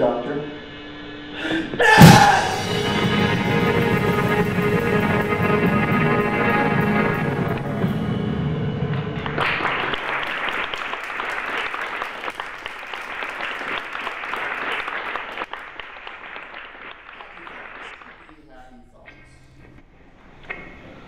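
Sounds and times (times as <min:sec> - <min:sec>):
live music: 0:01.8 - 0:11.3
audience applause: 0:09.2 - 0:18.3.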